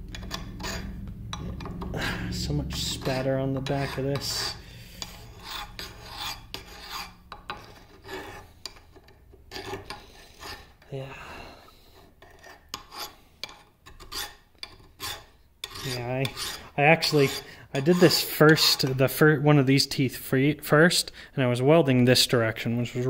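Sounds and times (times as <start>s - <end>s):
file rasping on steel: 0.1s - 1.6s, 2.3s - 10.8s, 11.9s - 19.0s.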